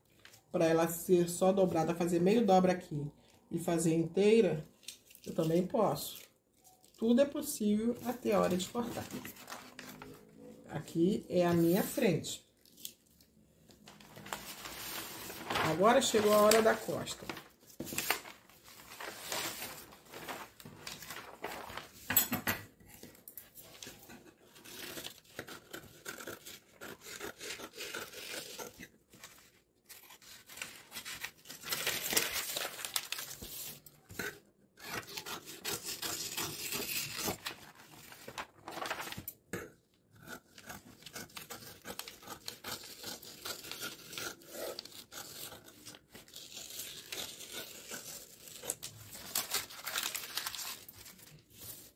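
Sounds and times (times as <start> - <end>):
paper rustling: 8.0 - 10.3, 13.6 - 22.2, 28.6 - 34.3, 34.9 - 39.4, 44.7 - 51.9
scissors cutting paper: 22.9 - 51.8.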